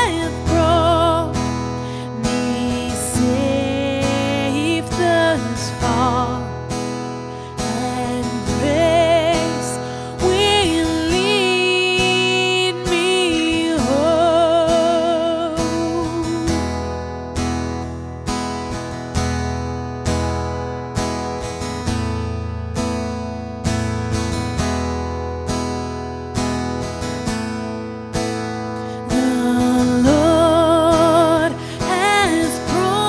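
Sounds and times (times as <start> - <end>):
person singing: 0.0 - 6.5, 7.5 - 16.7, 28.9 - 33.0.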